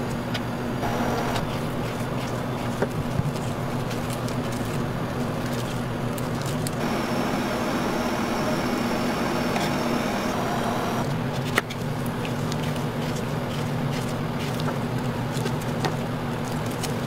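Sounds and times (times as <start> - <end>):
machine hum and hiss: 0.0 - 13.4.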